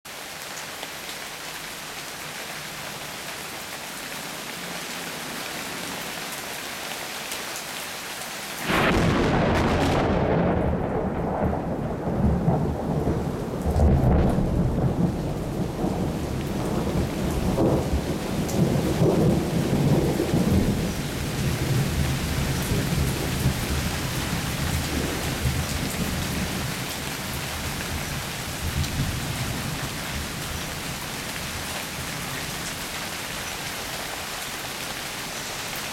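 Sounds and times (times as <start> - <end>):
steady rain: 0.0 - 35.9
thunderclap: 8.6 - 20.9
thunder rumbling: 8.6 - 28.0.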